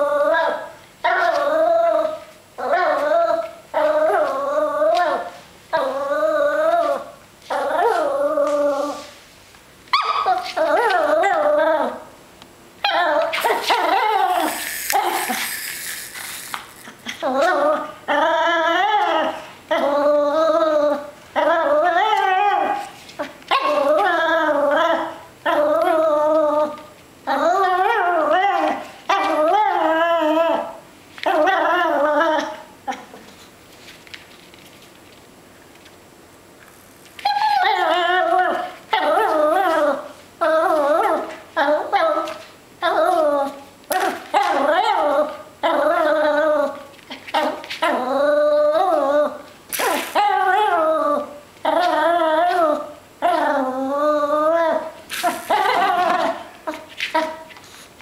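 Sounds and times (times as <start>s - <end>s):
puppy whining and yipping: 0.0s - 9.1s, 9.9s - 12.0s, 12.8s - 33.3s, 37.2s - 57.7s.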